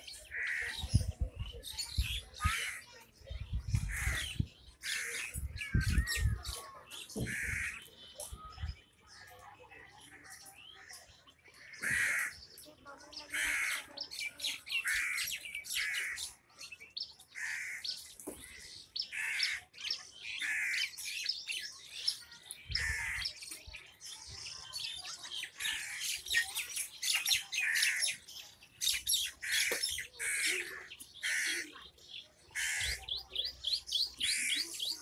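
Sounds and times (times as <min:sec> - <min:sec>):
birds squawking: 0:00.1 - 0:01.0, 0:03.8 - 0:08.0, 0:11.6 - 0:12.5, 0:13.2 - 0:13.9, 0:14.7 - 0:16.4, 0:17.3 - 0:21.1, 0:22.7 - 0:23.4, 0:27.1 - 0:31.8, 0:32.5 - 0:34.8.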